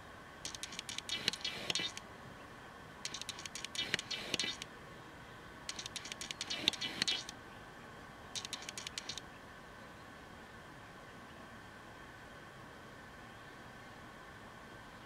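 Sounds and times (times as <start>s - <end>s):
mascara wand scratching eyelashes: 0.5s - 2.0s, 3.1s - 4.6s, 5.7s - 7.3s, 8.4s - 9.2s.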